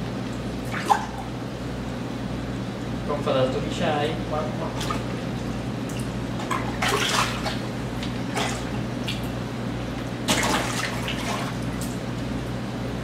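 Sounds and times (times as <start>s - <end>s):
fish splashing in aquarium: 0.1s - 1.5s, 4.7s - 12.6s.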